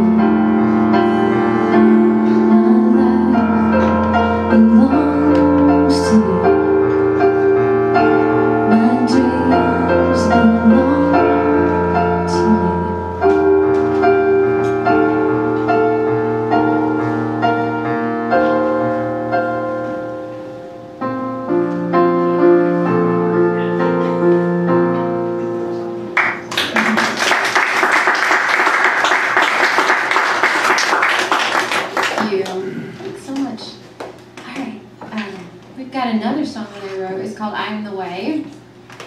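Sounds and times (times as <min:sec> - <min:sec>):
sustained piano chords: 0:00.0 - 0:33.8
audience applauding: 0:26.2 - 0:32.8.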